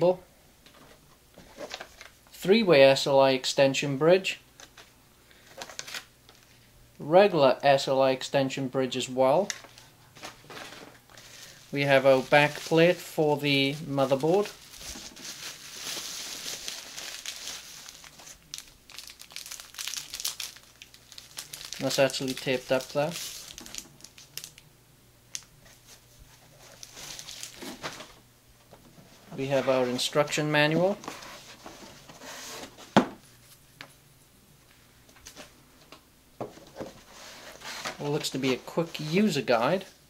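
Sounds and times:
bubble wrap crinkling: 9.5 - 24.6, 25.3 - 28.2
paper rustling: 13.7 - 18.4, 25.6 - 28.2.

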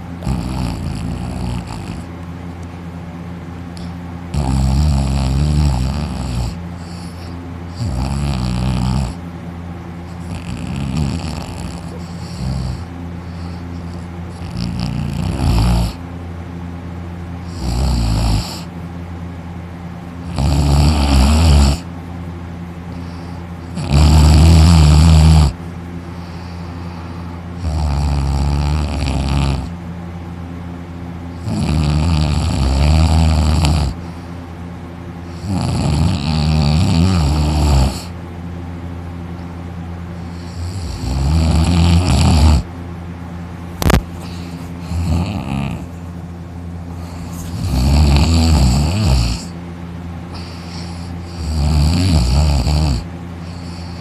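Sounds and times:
man snoring loudly: 0.0 - 2.1, 3.8 - 9.2, 10.1 - 16.0, 17.4 - 18.7, 20.2 - 21.9, 23.0 - 25.6, 27.6 - 29.7, 31.3 - 34.2, 35.3 - 38.2, 40.2 - 42.7, 43.8 - 45.9, 46.9 - 49.6, 50.3 - 54.0.

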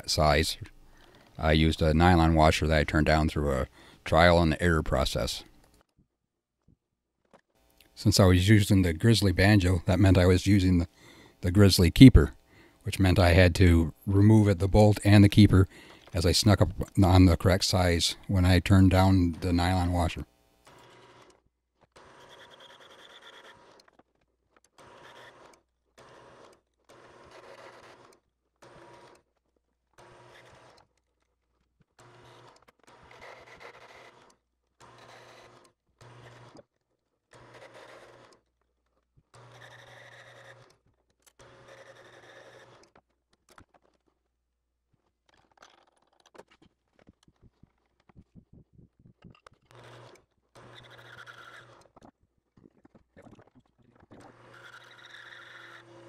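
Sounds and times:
lathe tool cutting nylon: 20.6 - 29.2, 29.9 - 30.9, 32.0 - 36.6, 37.3 - 38.4, 39.3 - 43.1, 49.7 - 52.1, 53.3 - 56.0
short clicks and scrapes: 20.6 - 44.3, 49.2 - 56.0
wood lathe humming: 39.4 - 40.7, 41.4 - 42.8, 49.7 - 51.9, 54.2 - 56.0.

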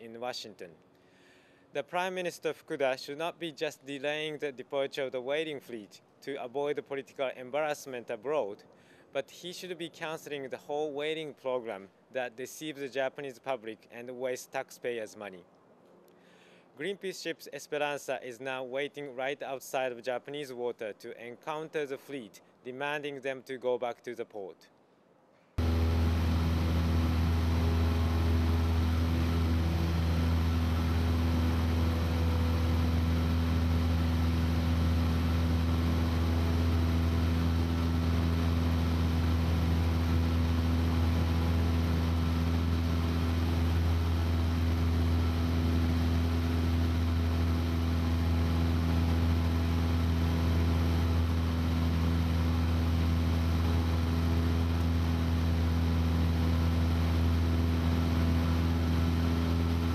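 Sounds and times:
aircraft engine drone: 25.6 - 59.9.

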